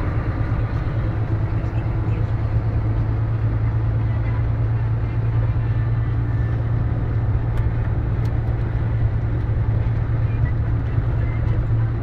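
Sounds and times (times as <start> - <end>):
truck engine drone: 0.0 - 12.0
tyre and road noise: 0.0 - 12.0.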